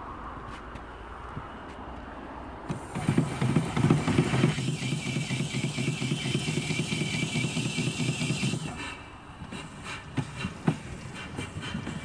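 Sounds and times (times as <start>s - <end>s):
steam engine pulsing exhaust: 2.7s - 12.0s
steam hiss: 2.7s - 12.0s.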